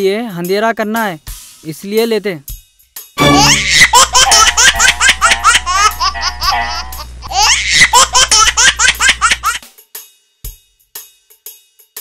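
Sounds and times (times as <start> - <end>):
canned laughter: 3.2 - 9.6.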